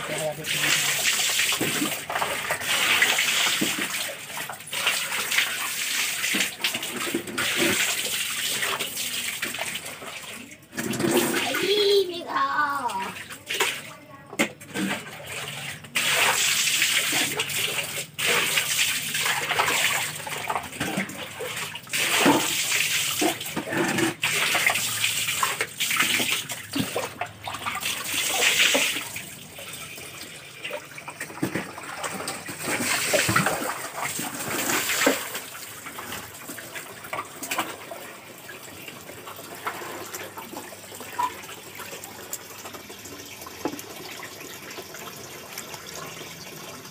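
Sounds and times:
hands splashing water in basin: 12.7 - 29.4, 31.1 - 38.0.

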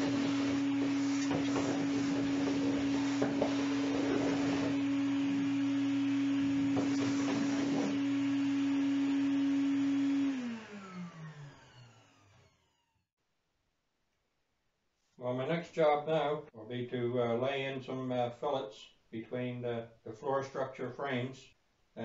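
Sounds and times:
shop vacuum whine: 0.0 - 13.0
vacuum motor spinning down: 0.0 - 13.0.

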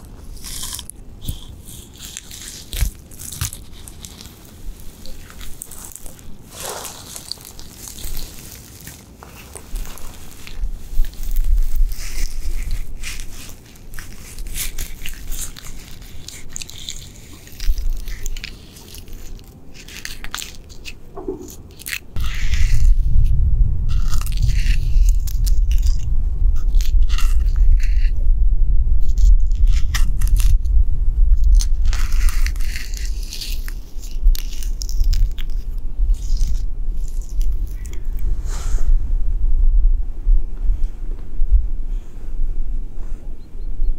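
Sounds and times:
scratching tree bark: 0.0 - 28.2, 29.0 - 30.7, 31.4 - 38.3
wind rumble on microphone: 9.4 - 43.9.

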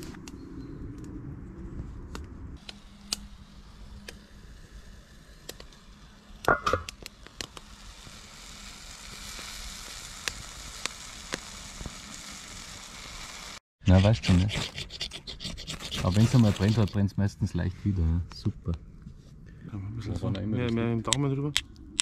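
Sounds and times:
mushrooms sizzling in a pan: 2.9 - 13.6
metal pot lid clank: 6.5 - 6.9.

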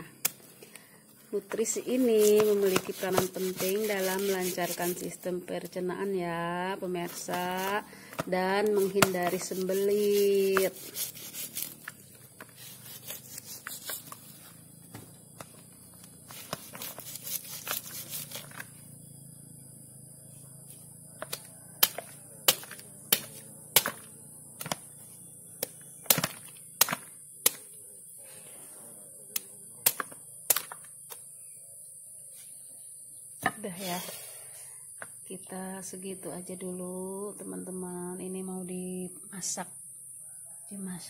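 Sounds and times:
machete chopping fruit: 1.9 - 5.1, 7.1 - 14.0, 21.2 - 25.0, 25.6 - 27.8, 29.4 - 31.2.

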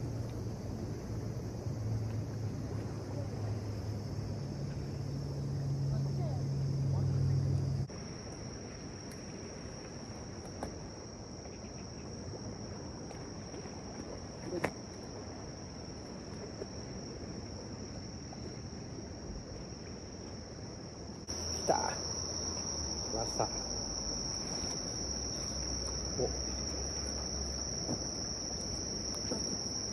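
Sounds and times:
insects trilling: 0.0 - 29.9.

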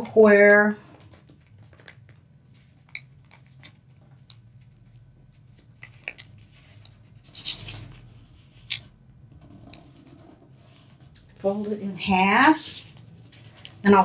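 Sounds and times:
paper being folded and creased: 0.8 - 11.4.

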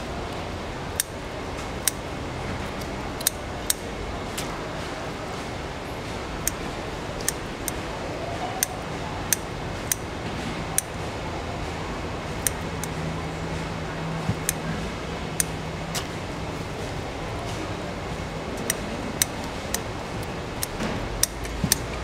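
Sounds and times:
scissors snipping shells: 14.2 - 16.1, 18.6 - 22.0.

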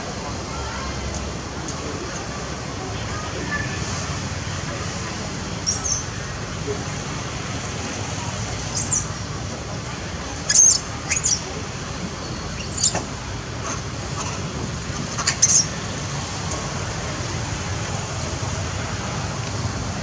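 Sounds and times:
monkeys squeaking: 5.6 - 6.1, 8.7 - 9.1, 10.5 - 11.5, 12.6 - 13.0, 15.2 - 15.7.

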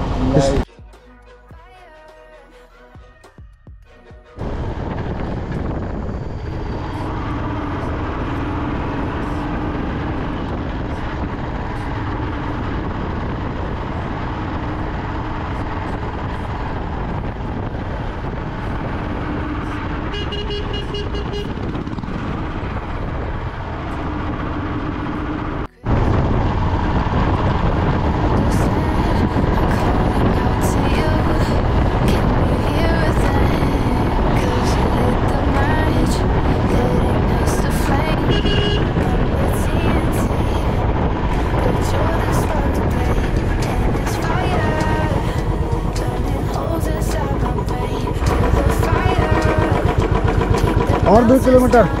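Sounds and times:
wind and road noise: 0.0 - 0.7, 4.0 - 52.0
motorcycle engine running: 4.4 - 52.0
short vehicle horn: 20.1 - 21.6, 38.3 - 39.0.

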